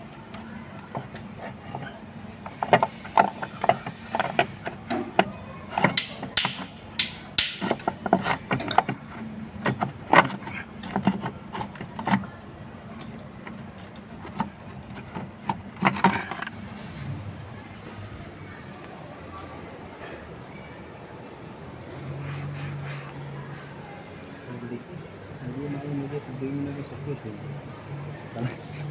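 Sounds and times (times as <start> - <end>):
metal engine parts clinking: 13.0 - 16.6.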